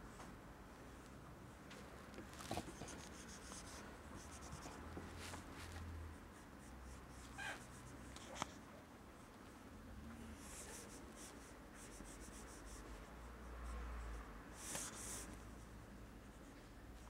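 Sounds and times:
pencil scratching on paper: 2.5s - 5.4s, 10.4s - 16.6s.

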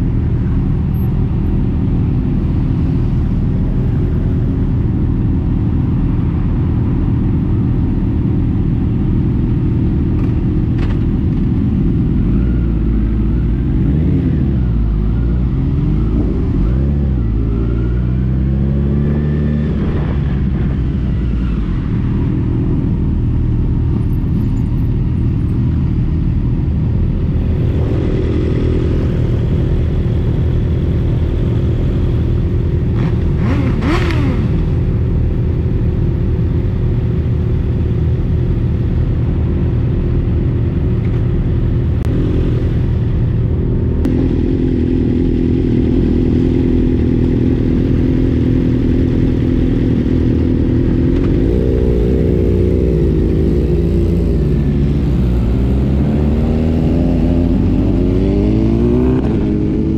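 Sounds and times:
road and wind noise: 0.0s - 59.9s
motorcycle engine running: 18.2s - 59.9s.

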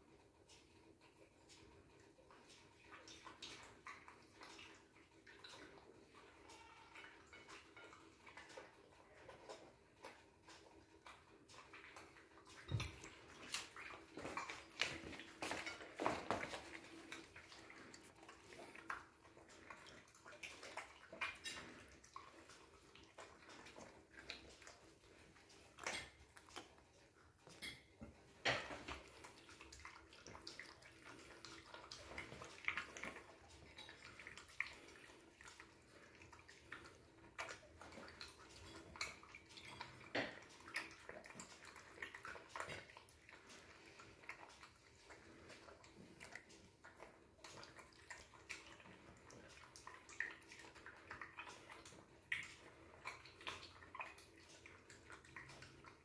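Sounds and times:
dog chewing and licking: 0.0s - 56.0s.

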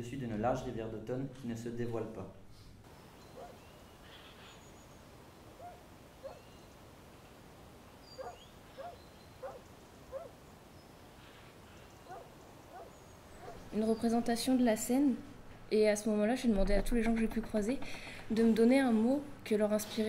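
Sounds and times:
rising animal calls: 8.0s - 10.4s, 11.1s - 13.7s.

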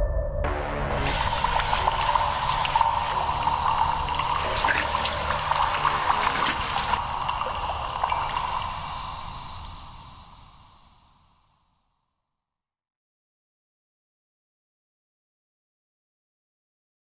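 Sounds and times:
tap running into washbasin: 0.9s - 8.6s
water splashing on face: 0.9s - 9.2s.

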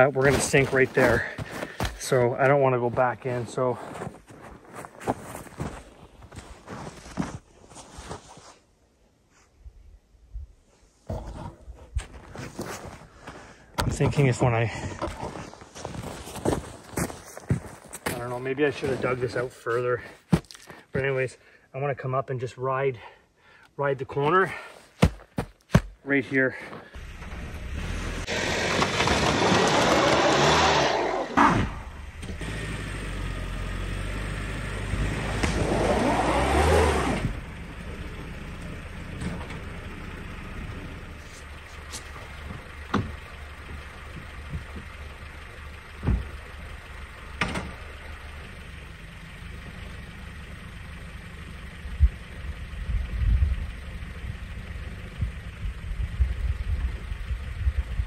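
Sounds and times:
car engine running low: 0.0s - 7.4s, 26.4s - 58.0s
tires spinning in snow: 0.0s - 8.3s, 15.1s - 20.0s, 27.0s - 58.0s
car engine revving hard: 27.6s - 37.5s.

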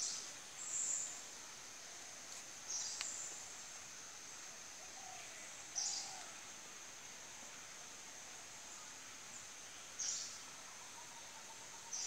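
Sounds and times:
light tick: 2.3s - 3.2s.

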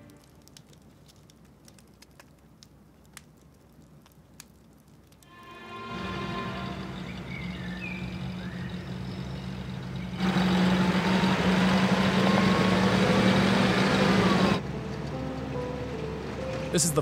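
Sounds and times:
tyres on dirt track: 5.9s - 17.0s
off-road vehicle engine hum: 6.0s - 17.0s.

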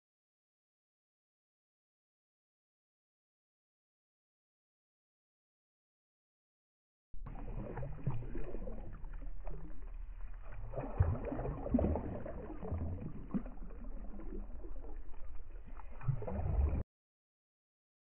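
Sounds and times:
feet wading in shallow seawater: 7.2s - 16.8s.

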